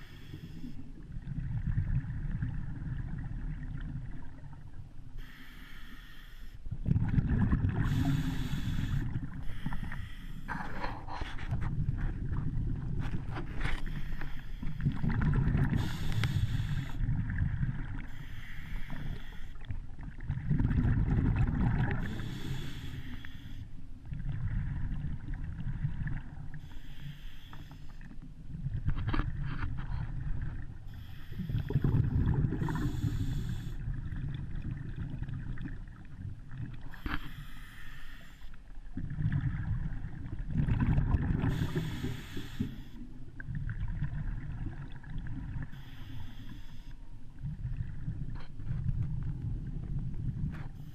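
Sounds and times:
muffled underwater water rumble: 0:00.0 - 0:50.9
short hissing bursts: 0:07.9 - 0:10.5, 0:15.8 - 0:17.0, 0:18.1 - 0:19.5, 0:37.2 - 0:38.5, 0:41.5 - 0:43.0, 0:45.7 - 0:46.9.

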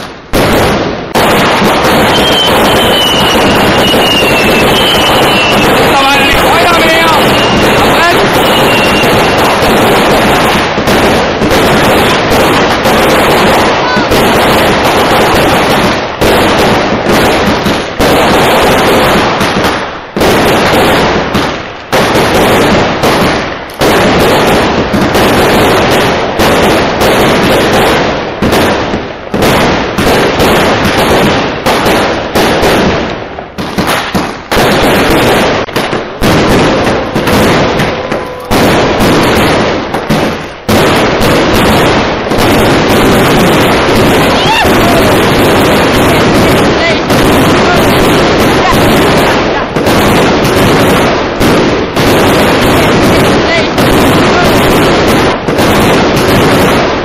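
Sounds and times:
fireworks explosions: 0:00.0 - 0:57.0.

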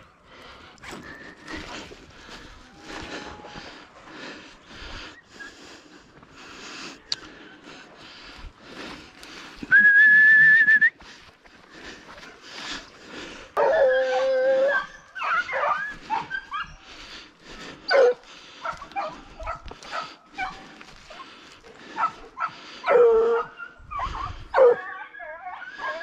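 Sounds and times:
hounds yelping and yipping: 0:00.7 - 0:03.8, 0:13.6 - 0:26.0
loud steady whistle: 0:09.7 - 0:11.0
hounds baying: 0:13.5 - 0:26.0.

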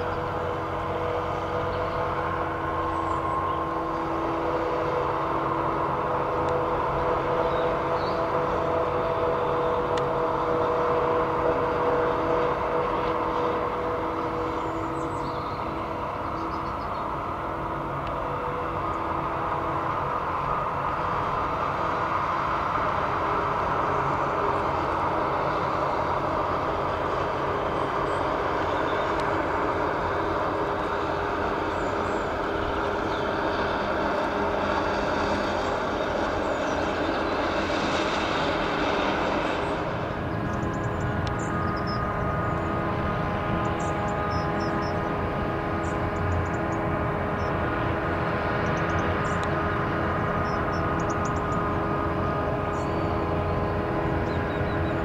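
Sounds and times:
deep engine drone: 0:00.0 - 0:55.0.

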